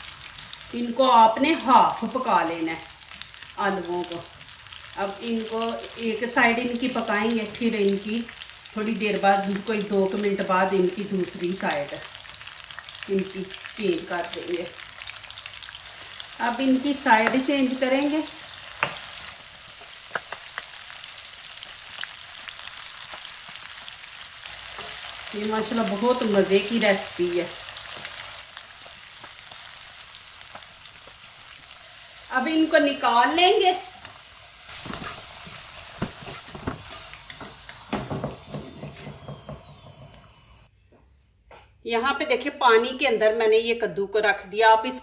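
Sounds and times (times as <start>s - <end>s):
potatoes sizzling in hot oil: 0.0s - 40.6s
wooden spatula knocking on pan: 36.0s - 40.1s.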